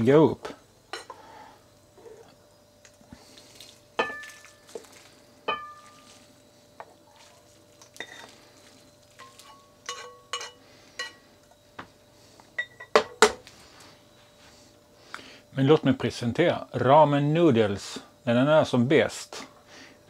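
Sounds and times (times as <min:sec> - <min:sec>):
tongs clinking on dishes: 0:09.2 - 0:11.2.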